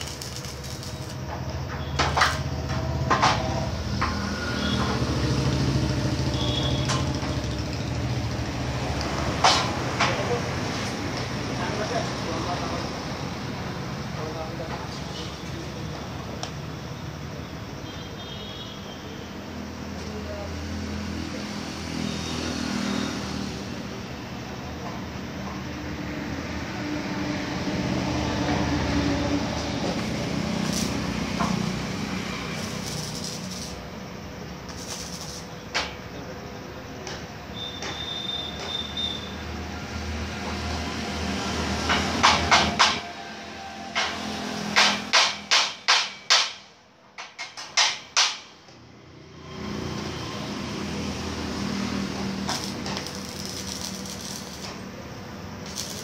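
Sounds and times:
engine rumble: 0:28.0 - 0:36.5, 0:50.8 - 0:56.0.

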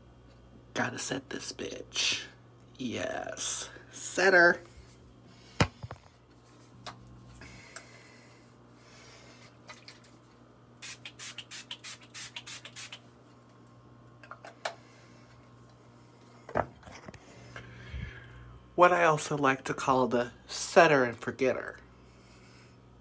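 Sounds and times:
spray bottle hisses: 0:10.8 - 0:13.1.

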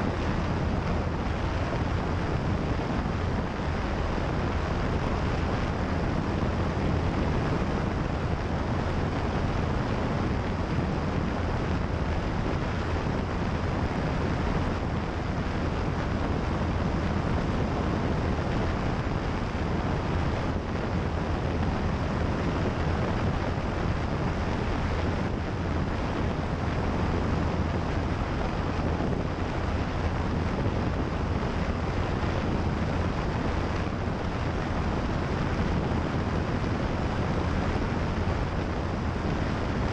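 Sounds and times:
light airplane engine drone: 0:00.0 - 0:39.9
wind rushing over microphone: 0:00.0 - 0:39.9.

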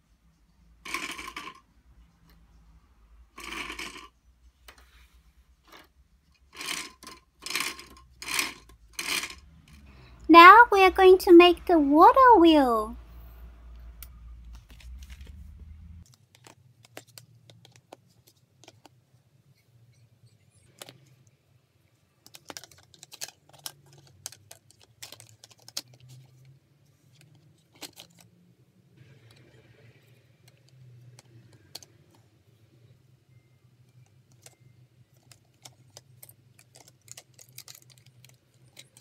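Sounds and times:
plastic toy pieces clicking: 0:00.9 - 0:01.6, 0:03.4 - 0:04.1, 0:06.5 - 0:09.4, 0:22.2 - 0:26.1, 0:34.3 - 0:39.0.

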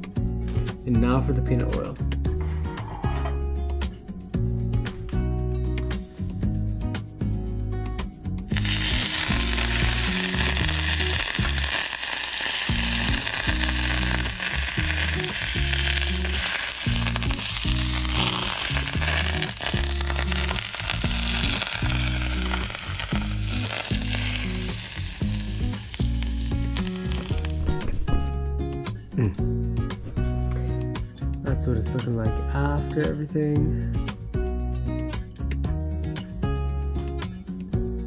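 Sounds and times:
hot oil sizzling on fish: 0:08.5 - 0:27.8.

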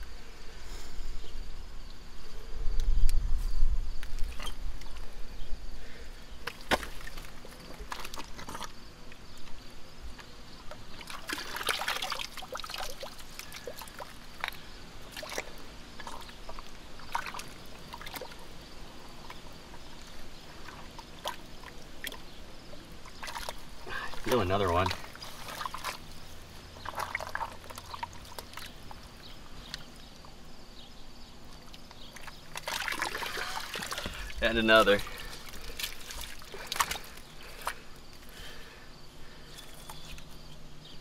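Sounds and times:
hand sloshing through muddy water: 0:06.4 - 0:08.8, 0:10.9 - 0:29.2, 0:31.7 - 0:37.8.

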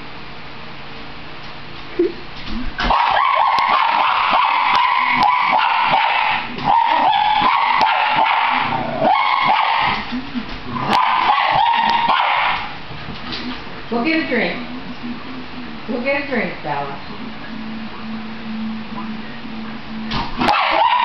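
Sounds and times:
dog whining and yipping: 0:02.9 - 0:10.0, 0:10.7 - 0:12.6, 0:20.4 - 0:21.0.

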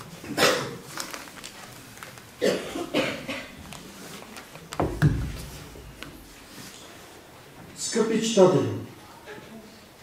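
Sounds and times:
person coughing: 0:00.3 - 0:00.8, 0:02.4 - 0:03.6.

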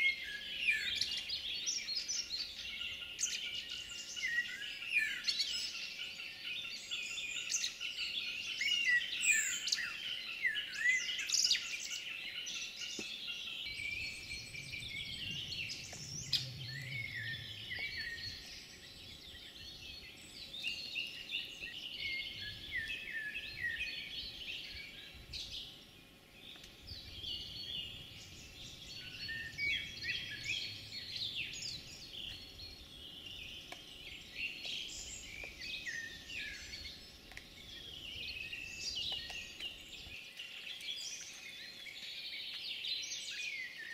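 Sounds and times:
small songbirds singing: 0:00.0 - 0:43.9
faint low rumble: 0:13.6 - 0:20.0.

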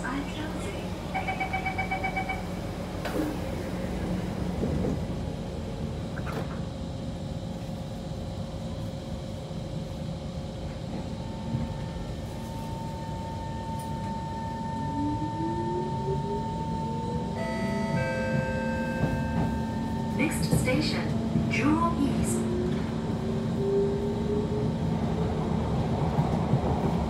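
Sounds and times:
train running rumble: 0:00.0 - 0:27.0
train motor whine: 0:10.9 - 0:24.8
train doors knocking shut: 0:17.8 - 0:19.8.

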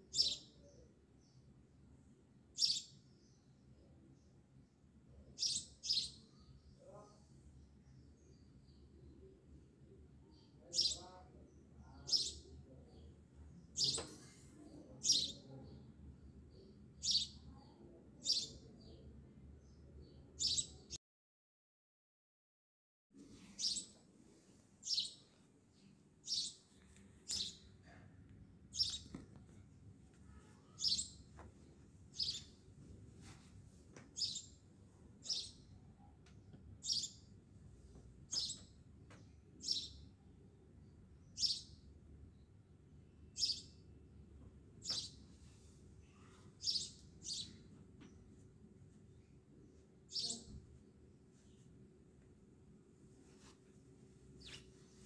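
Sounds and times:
bird chirping: 0:00.0 - 0:01.5, 0:02.5 - 0:04.3, 0:05.3 - 0:07.1, 0:10.3 - 0:14.1, 0:14.7 - 0:19.0, 0:19.6 - 0:21.0, 0:23.5 - 0:24.0, 0:24.8 - 0:28.0, 0:28.7 - 0:29.2, 0:30.3 - 0:31.3, 0:32.1 - 0:32.6, 0:34.2 - 0:34.6, 0:35.2 - 0:36.1, 0:36.8 - 0:37.3, 0:38.3 - 0:40.1, 0:41.2 - 0:41.9, 0:43.3 - 0:43.8, 0:44.8 - 0:45.2, 0:46.2 - 0:48.3, 0:50.1 - 0:50.5, 0:54.4 - 0:55.0.

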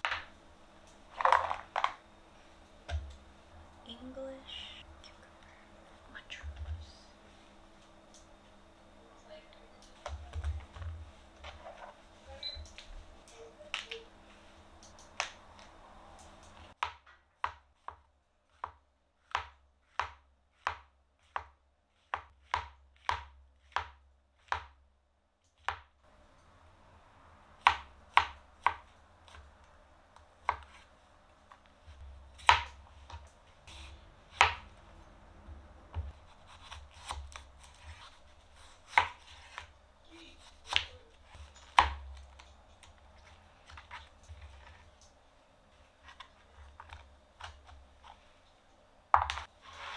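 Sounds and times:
knife cutting on board: 0:35.9 - 0:39.7.

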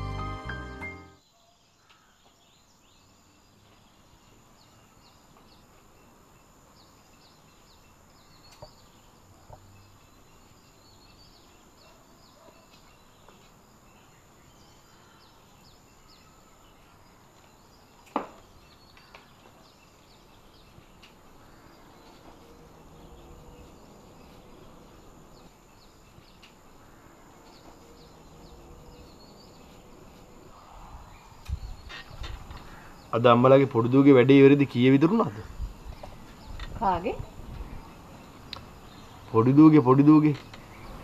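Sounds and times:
background music: 0:00.0 - 0:01.2
small birds chirping: 0:00.0 - 0:41.0
steady hiss: 0:12.8 - 0:41.0.

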